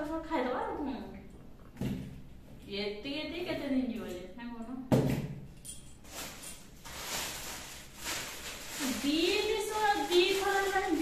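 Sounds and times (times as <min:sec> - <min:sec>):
soft rustling: 0:06.0 - 0:11.0.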